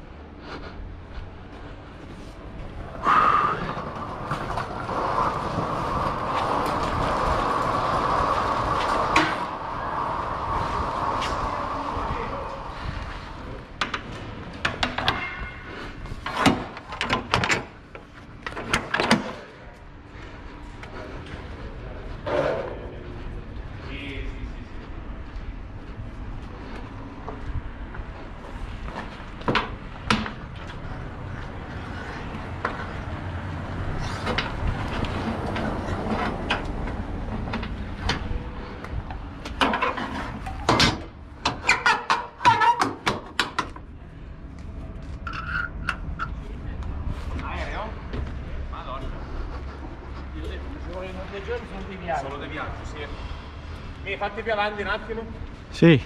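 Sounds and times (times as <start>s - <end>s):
truck engine rumble: 0.0s - 14.6s.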